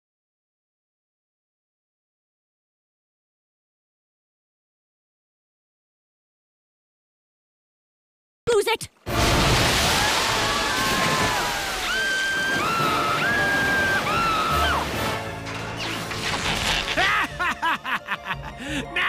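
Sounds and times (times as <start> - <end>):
rushing splashing water: 9.1 - 15.4
children screaming: 9.8 - 15.0.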